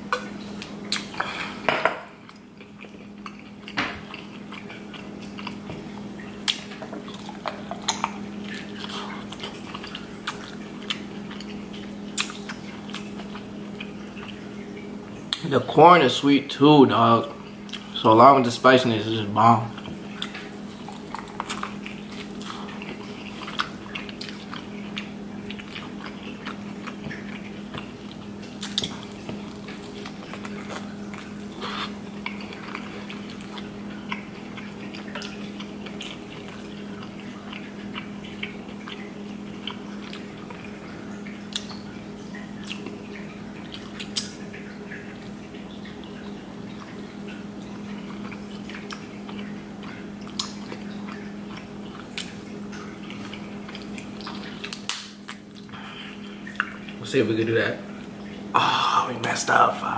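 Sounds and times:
wet biting and chewing: 0:00.0 - 0:15.5, 0:17.4 - 0:18.0, 0:19.7 - 0:57.0
steady low hum: 0:00.0 - 0:59.9
crab shells cracking: 0:53.4 - 0:55.7.

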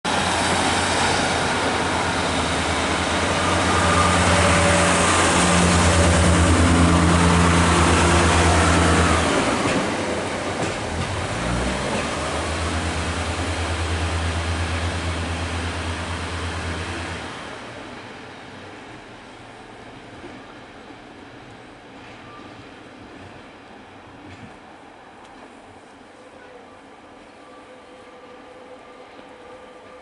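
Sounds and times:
diesel train engine drone: 0:00.1 - 0:22.0.

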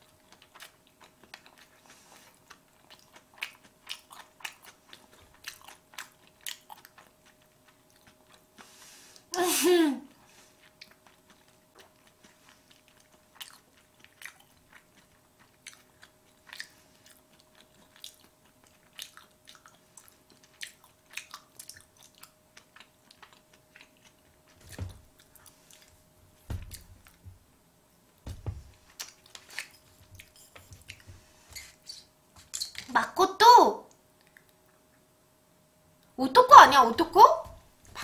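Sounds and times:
wet chewing mouth clicks: 0:00.1 - 0:08.7, 0:10.6 - 0:25.9.

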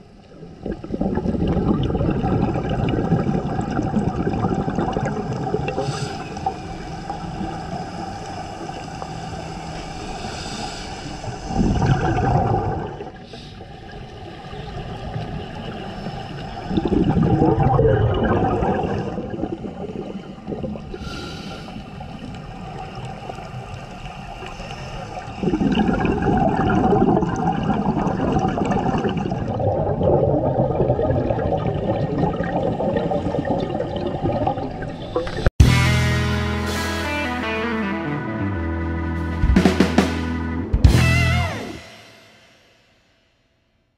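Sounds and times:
steady underwater hiss: 0:00.0 - 0:17.4, 0:18.4 - 0:29.0
diver regulator bubbling underwater: 0:00.4 - 0:06.0, 0:11.6 - 0:13.2, 0:16.7 - 0:21.0, 0:25.4 - 0:35.5.

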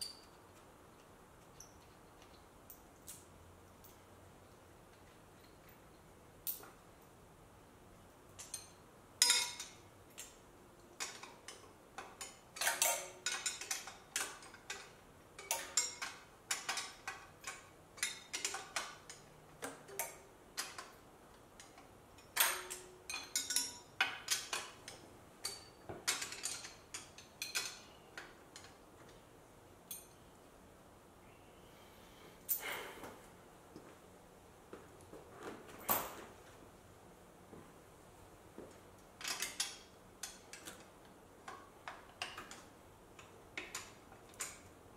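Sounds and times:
metal tools clinking on engine: 0:11.0 - 0:19.3, 0:21.6 - 0:28.8, 0:32.5 - 0:32.9.

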